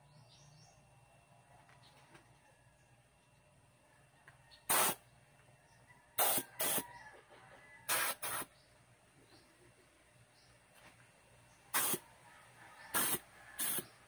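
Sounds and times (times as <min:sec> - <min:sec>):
compressed air blasts hissing: 0:04.7 - 0:05.0, 0:06.2 - 0:06.8, 0:07.9 - 0:08.5, 0:11.7 - 0:12.1, 0:12.8 - 0:14.0.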